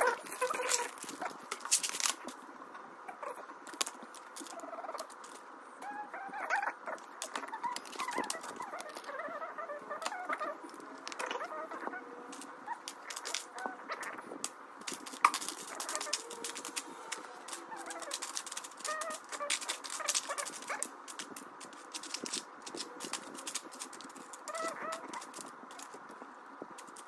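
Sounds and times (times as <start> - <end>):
plastic bricks clicking: 0.1 - 2.3, 12.3 - 13.6, 14.8 - 26.0.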